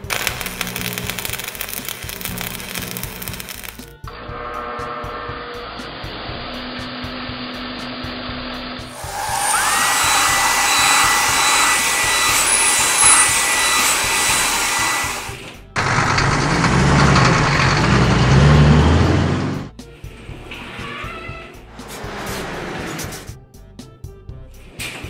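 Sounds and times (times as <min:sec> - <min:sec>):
car wash blower whirring hiss: 0:08.9 - 0:17.2
low rumble of truck rolling: 0:15.6 - 0:20.8.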